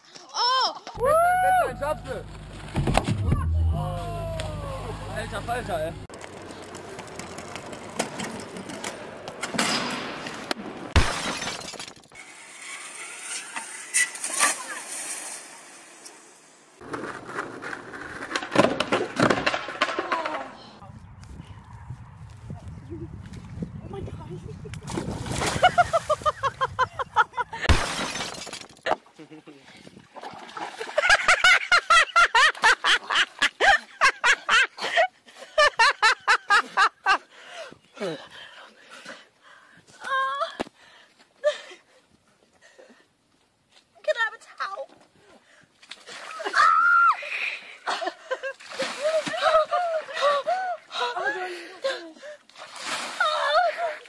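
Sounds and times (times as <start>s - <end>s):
loud crash with shattering clatter: 27.7s - 28.8s.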